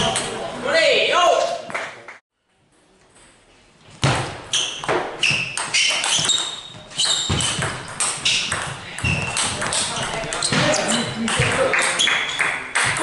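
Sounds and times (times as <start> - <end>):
table tennis ball hitting rackets: 4.0 - 13.0.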